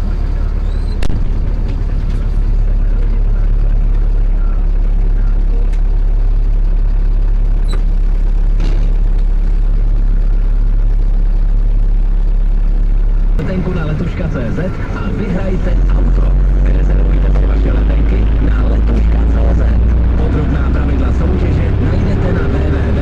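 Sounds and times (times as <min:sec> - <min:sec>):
diesel tractor engine idling: 0:00.0 - 0:23.0.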